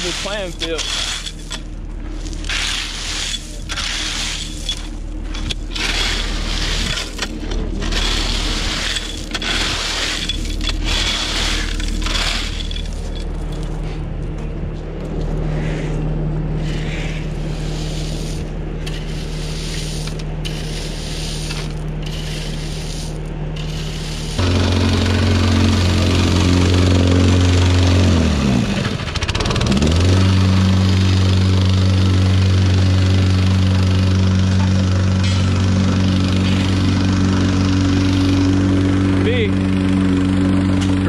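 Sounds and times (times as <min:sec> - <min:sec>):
scraping of gravel: 0:00.0 - 0:24.8, 0:34.4 - 0:37.6
engine hum: 0:00.0 - 0:41.0.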